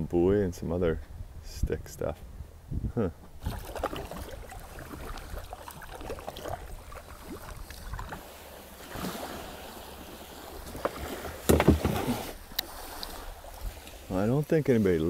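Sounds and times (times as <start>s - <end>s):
kayak bump: 3.3s - 14.2s
kayak hull scraping on sand: 3.4s - 15.0s.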